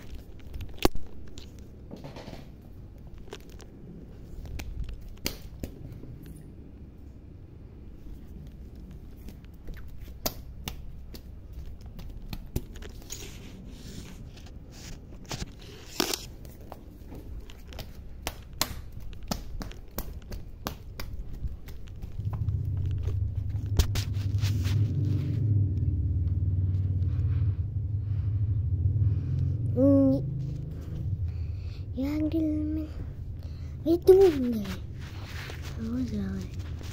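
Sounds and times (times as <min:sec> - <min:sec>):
low rumble: 0:21.2 - 0:36.9.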